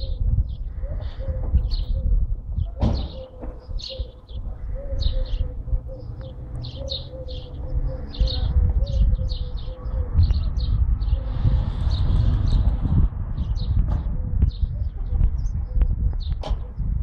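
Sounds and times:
small birds chirping: 0.0s - 17.0s
low rumble: 7.5s - 17.0s.

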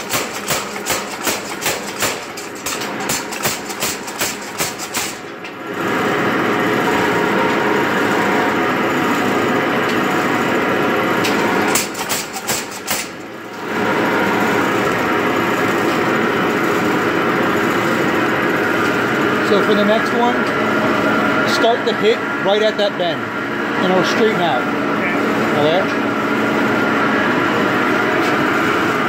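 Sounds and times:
power hammer pounding steel: 0.0s - 5.6s, 10.0s - 20.4s.

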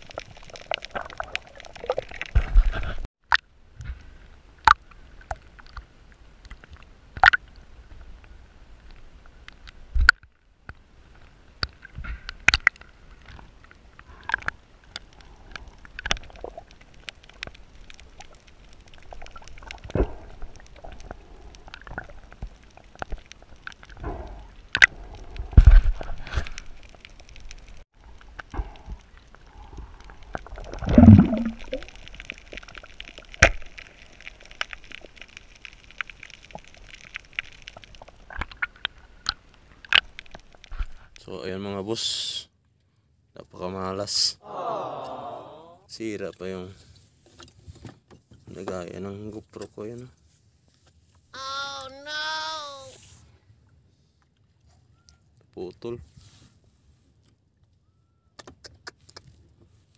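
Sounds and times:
underwater water sloshing and gurgling: 0.0s - 41.2s
sharp underwater clicks and knocks: 11.6s - 13.5s, 14.2s - 41.2s, 58.4s - 59.4s.

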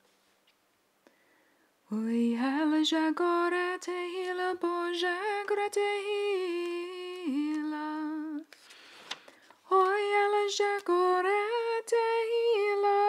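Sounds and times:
woman singing unaccompanied: 1.9s - 8.5s, 9.6s - 13.0s.

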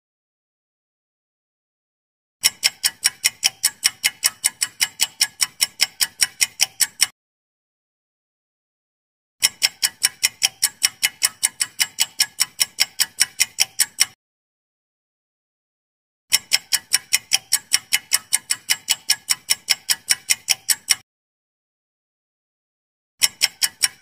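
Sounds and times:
rapid clock ticks: 2.4s - 7.2s, 9.4s - 14.2s, 16.3s - 21.0s, 23.2s - 24.0s.

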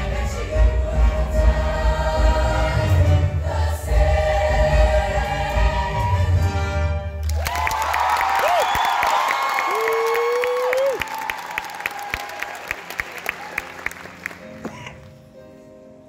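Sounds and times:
choir singing with band: 0.0s - 6.7s
audience applause and cheering: 5.7s - 14.7s.

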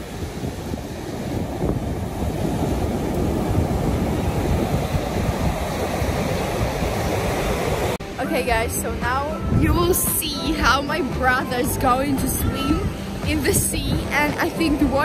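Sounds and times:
foam washing onto sandy beach: 0.0s - 8.0s
waves breaking: 0.0s - 15.0s.

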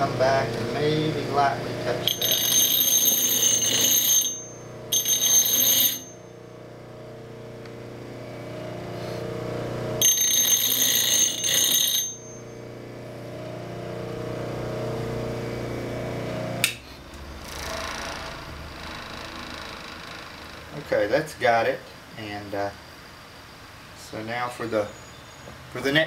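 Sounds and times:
bench grinder humming: 0.0s - 20.8s
steel grinding whine: 0.0s - 21.7s.

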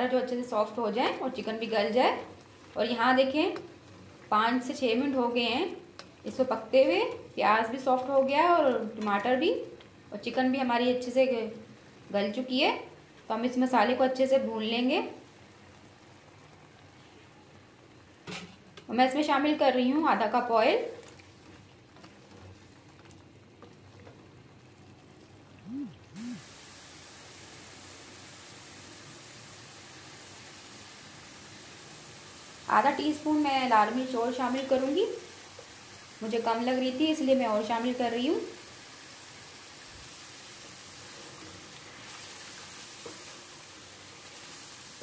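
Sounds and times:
food sizzling in a wok: 0.0s - 21.0s, 26.2s - 45.0s
masala bubbling in hot oil: 0.0s - 45.0s
brief rising and falling tones: 25.6s - 26.5s.

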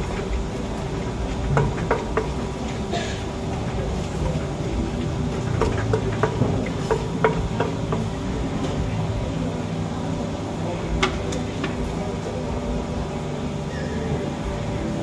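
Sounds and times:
steady background hum: 0.0s - 15.0s
pestle pounding in a mortar: 0.2s - 2.8s, 3.6s - 8.2s.

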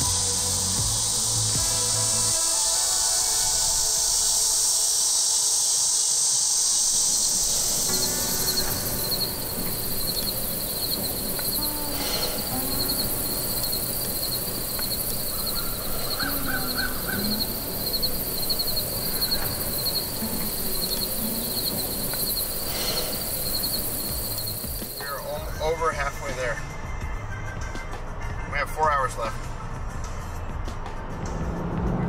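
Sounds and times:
insects trilling: 0.0s - 26.6s
faint bird calls: 6.6s - 25.4s
bird chirps: 6.7s - 25.6s.

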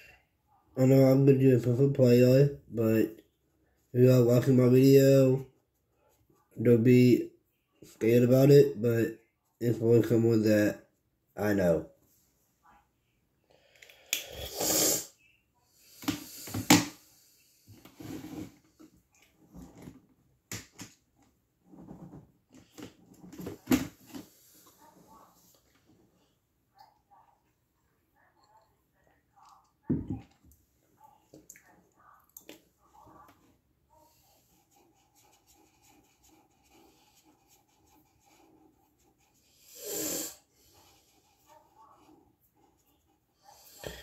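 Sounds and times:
soft rustling and shuffling: 21.0s - 26.5s
colouring tool scratching paper: 34.2s - 40.0s.

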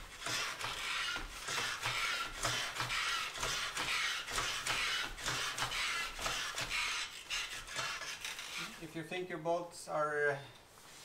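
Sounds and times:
jack being pumped by hand: 0.0s - 8.8s.

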